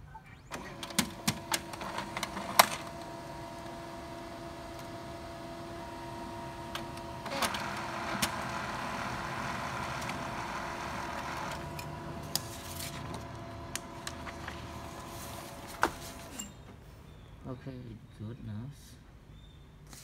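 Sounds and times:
printer motor whine: 0.4s - 16.4s
printer clicks: 0.5s - 5.0s, 6.6s - 14.8s
printer paper feed rushing: 0.5s - 16.4s.

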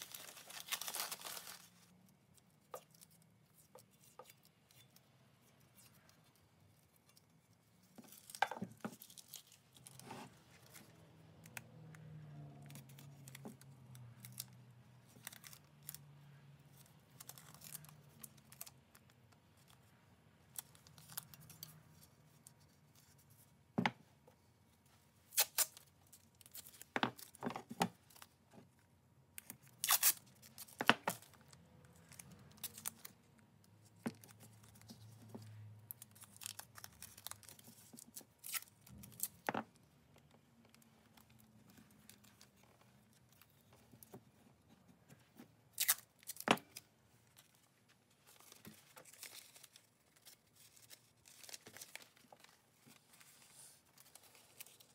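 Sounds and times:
tape crinkling: 0.0s - 11.6s, 25.3s - 28.4s, 29.4s - 44.2s, 45.3s - 54.9s
tape being torn off roll: 29.8s - 30.8s.

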